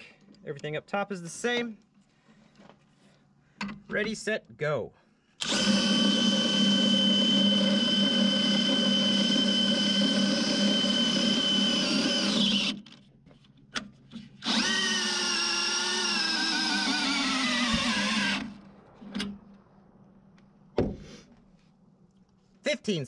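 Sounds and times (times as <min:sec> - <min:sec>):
cordless drill whining: 0:05.4 - 0:13.0, 0:14.4 - 0:18.6
drill clicks: 0:05.4 - 0:13.0, 0:13.7 - 0:18.6.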